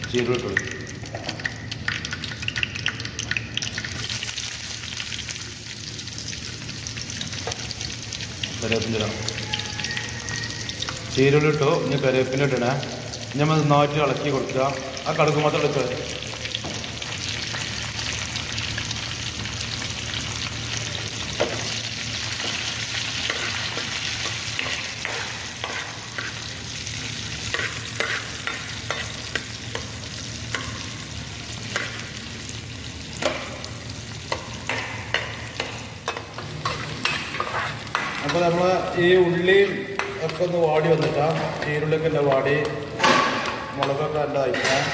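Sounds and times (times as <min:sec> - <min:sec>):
food sizzling in hot oil: 0:00.0 - 0:44.5
metal spoon scraping and clicking pan: 0:23.2 - 0:26.5, 0:27.5 - 0:29.9, 0:34.3 - 0:38.4.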